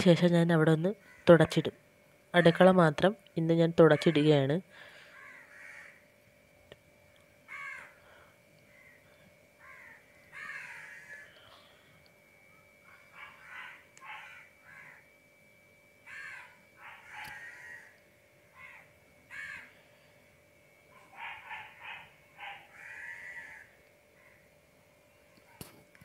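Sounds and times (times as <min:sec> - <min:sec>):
crows cawing: 0:01.0 - 0:01.4, 0:04.0 - 0:06.0, 0:07.5 - 0:08.1, 0:08.7 - 0:11.5, 0:12.9 - 0:15.1, 0:16.0 - 0:19.9, 0:21.0 - 0:24.5.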